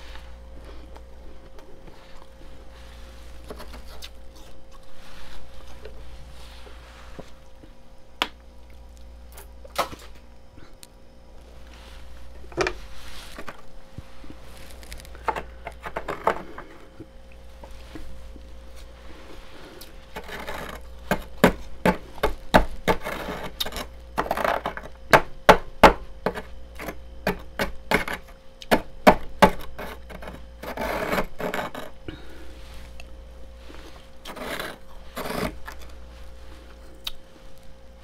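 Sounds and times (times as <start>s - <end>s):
steady low hum: 0.0s - 38.0s
metal spoon scraping frost: 19.0s - 25.0s, 29.6s - 32.0s, 33.6s - 36.3s.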